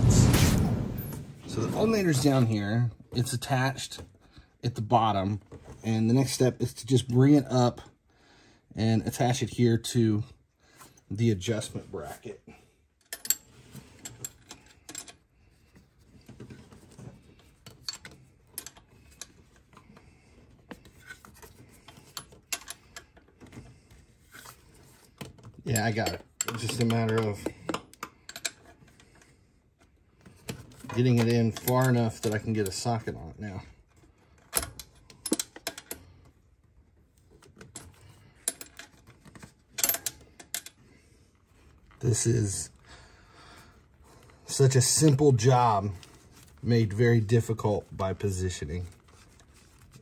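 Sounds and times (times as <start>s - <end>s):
light metal clicks and clinks: 25.7s - 29.0s.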